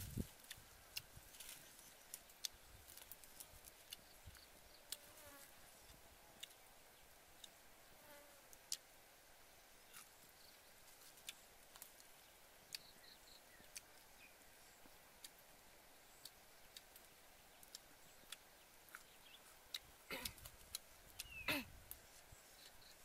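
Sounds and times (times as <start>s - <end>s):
rustling: 0.0s - 3.9s.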